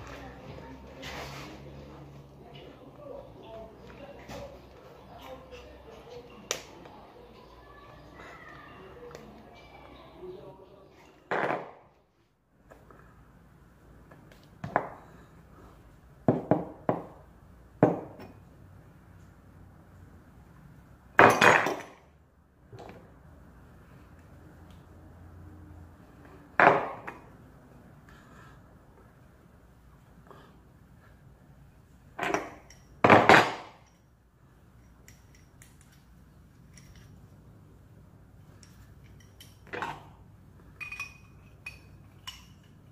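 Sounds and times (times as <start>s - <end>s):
light metallic clinks: 34.8s - 37.3s, 38.4s - 39.8s, 40.7s - 42.9s.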